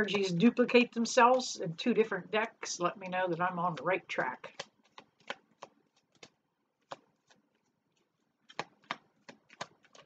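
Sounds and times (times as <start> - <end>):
cards shuffled by hand: 3.0 - 10.0.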